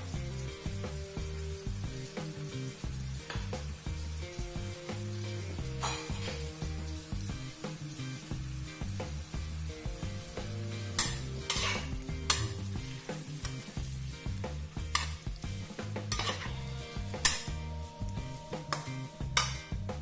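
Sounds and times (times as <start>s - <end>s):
food sizzling in a wok: 0.0s - 20.0s
spatula scraping a wok: 5.6s - 6.8s, 10.9s - 14.2s, 14.8s - 17.6s.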